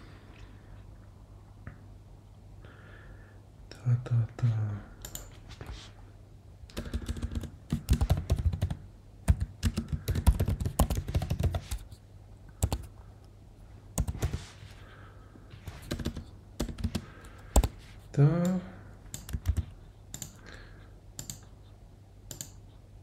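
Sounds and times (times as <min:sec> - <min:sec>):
typing on computer keyboard: 0:05.0 - 0:05.4, 0:06.7 - 0:11.9, 0:12.6 - 0:12.9, 0:14.0 - 0:14.4, 0:15.7 - 0:17.8, 0:19.1 - 0:20.4, 0:21.2 - 0:21.5, 0:22.3 - 0:22.6.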